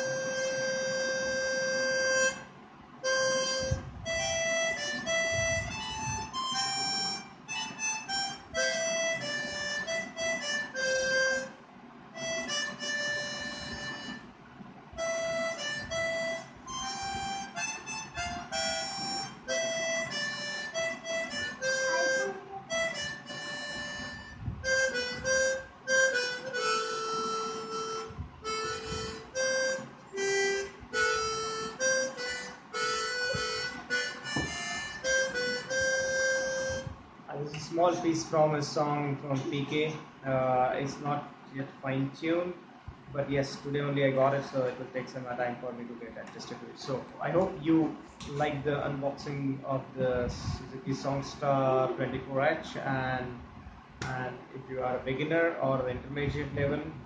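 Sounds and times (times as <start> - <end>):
harmonica melody: 0.0 - 14.3, 15.0 - 36.9.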